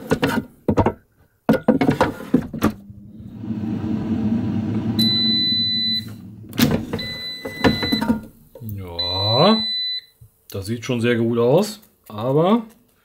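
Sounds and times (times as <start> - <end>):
air fryer fan running: 2.8 - 7.2
long electronic beep: 5.0 - 6.3, 6.9 - 8.2
plastic drawer clunks: 6.5 - 8.3.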